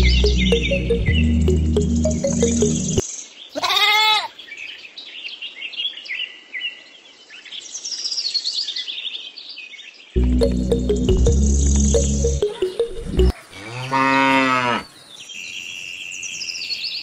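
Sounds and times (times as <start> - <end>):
background music: 0.0 - 3.0, 10.2 - 13.3
birds chirping and singing: 0.0 - 3.7
loud bleat: 3.6 - 4.4, 13.6 - 14.8.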